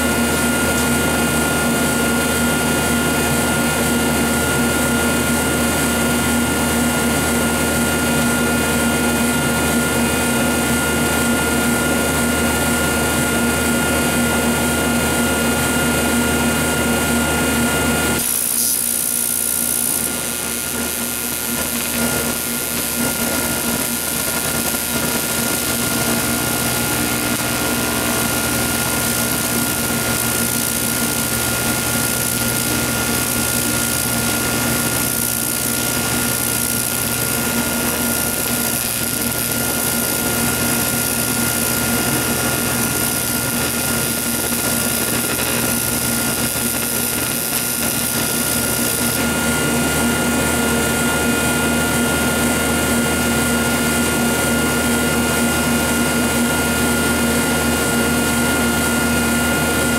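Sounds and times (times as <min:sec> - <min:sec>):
welding arc buzzing hiss: 0:00.0 - 0:59.9
constant whine: 0:16.5 - 0:54.6.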